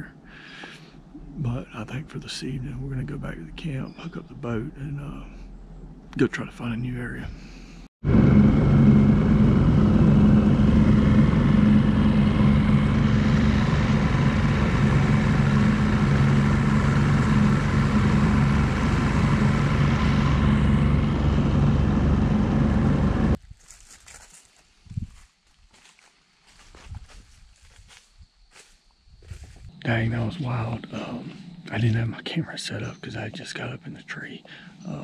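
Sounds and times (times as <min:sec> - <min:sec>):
outboard motor running: 0:08.0 - 0:23.4.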